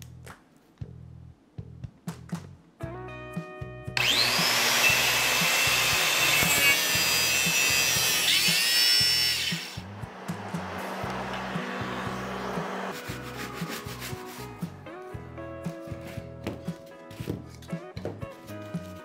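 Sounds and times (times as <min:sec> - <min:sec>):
background music: 0:00.0 - 0:19.0
circular saw whining: 0:04.0 - 0:13.0
saw cutting wood: 0:04.0 - 0:14.4.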